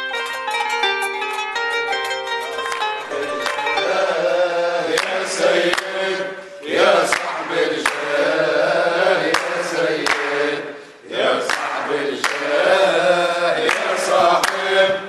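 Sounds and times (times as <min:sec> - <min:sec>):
sharp percussive beats: 0:00.0 - 0:08.2
men chanting together: 0:03.8 - 0:15.0.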